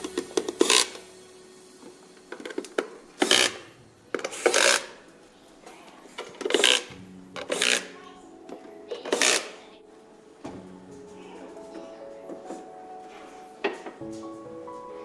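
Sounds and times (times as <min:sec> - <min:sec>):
screwdriver scraping: 0:03.2 - 0:03.6, 0:04.2 - 0:04.9, 0:06.4 - 0:07.9.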